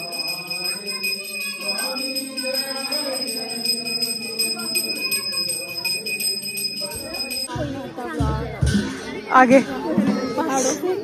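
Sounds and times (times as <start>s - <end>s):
temple bell ringing: 0.0s - 7.5s
murmur of crowd: 0.0s - 11.0s.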